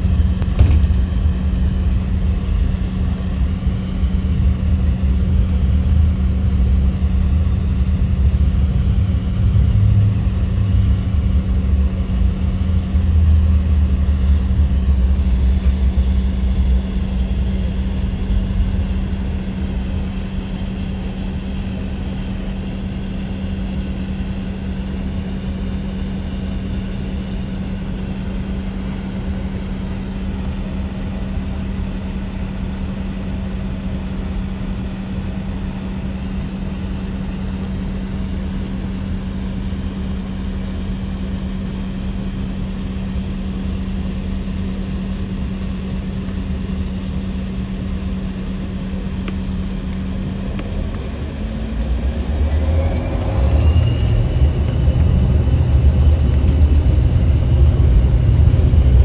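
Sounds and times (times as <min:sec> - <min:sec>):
low rumble: 0:00.0 - 0:21.9, 0:47.4 - 0:59.0
jet engine drone in cabin: 0:00.0 - 0:59.0.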